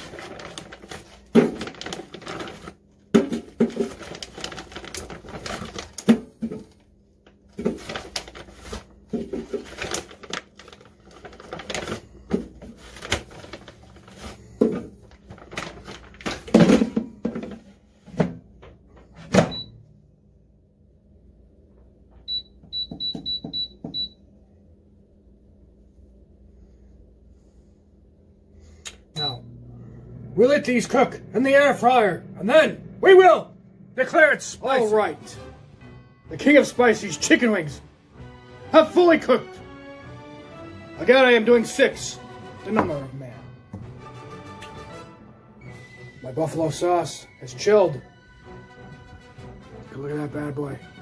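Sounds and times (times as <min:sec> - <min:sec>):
plastic bag rustling: 0:00.0 - 0:17.0
air fryer beeps: 0:19.4 - 0:19.8, 0:22.3 - 0:24.2, 0:29.2 - 0:29.6.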